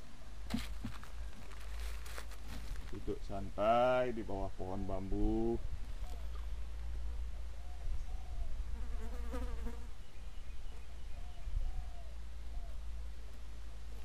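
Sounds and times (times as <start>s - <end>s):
faint bird calls: 5.9s - 9.0s, 10.0s - 12.9s.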